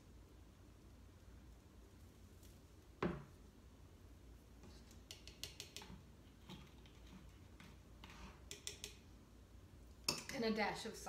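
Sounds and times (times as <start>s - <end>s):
plastic spoon tapping metal saucepan: 5.0s - 6.0s, 8.5s - 9.0s.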